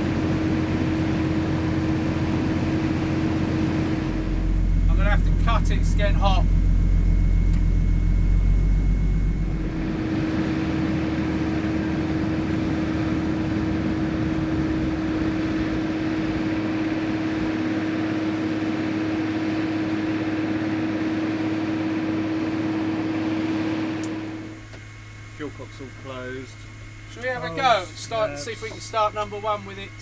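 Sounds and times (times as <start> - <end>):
propellers winding down: 0.2 - 20.5
piston engine shutting down: 2.0 - 17.9.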